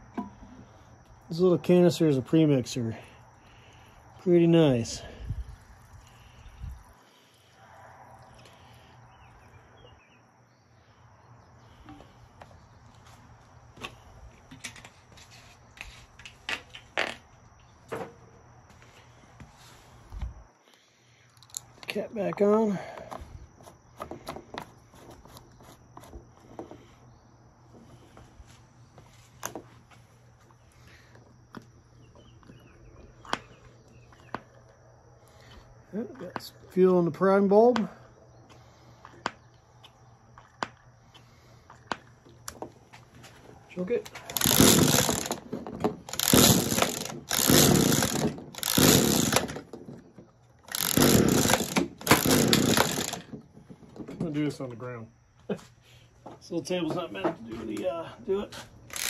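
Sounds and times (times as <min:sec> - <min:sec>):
recoil starter rope cranking engine: 0:44.2 - 0:49.7, 0:50.7 - 0:53.3.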